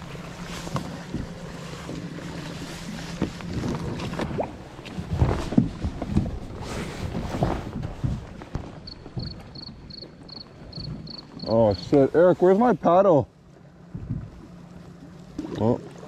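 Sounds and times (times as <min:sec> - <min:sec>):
paddle knocking: 0:00.0 - 0:12.0
water splashing around kayak: 0:00.0 - 0:16.0
wind buffeting microphone: 0:02.9 - 0:12.1.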